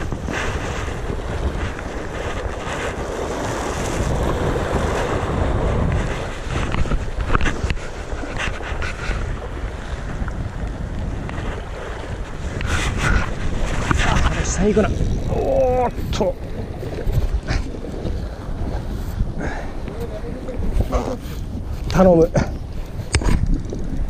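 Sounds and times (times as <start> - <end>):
waves washing against rocks: 0.0 - 24.0
wind buffeting microphone: 0.0 - 24.0.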